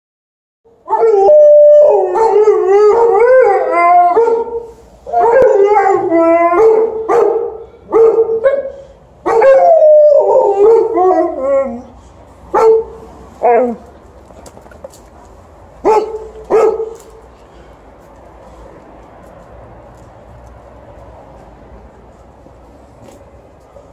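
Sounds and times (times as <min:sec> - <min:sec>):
dogs howling: 0:00.9 - 0:07.1, 0:09.3 - 0:11.9
dogs barking: 0:00.9 - 0:11.4, 0:12.5 - 0:13.8, 0:15.8 - 0:17.2.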